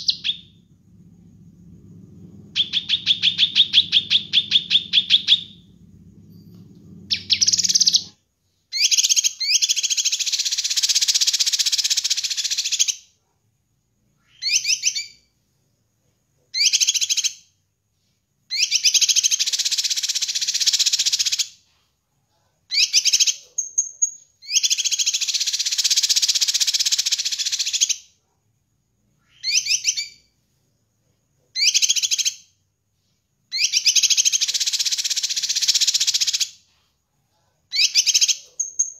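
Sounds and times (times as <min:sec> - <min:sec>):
bird chattering song: 0:00.0 - 0:00.6, 0:02.5 - 0:05.6, 0:07.1 - 0:08.2
clear bird whistle: 0:00.0 - 0:00.6, 0:02.5 - 0:05.7, 0:07.1 - 0:13.0, 0:14.2 - 0:15.3, 0:18.5 - 0:21.6, 0:22.7 - 0:28.1, 0:29.2 - 0:30.3, 0:31.6 - 0:32.6, 0:33.5 - 0:36.6, 0:37.7 - 0:38.9.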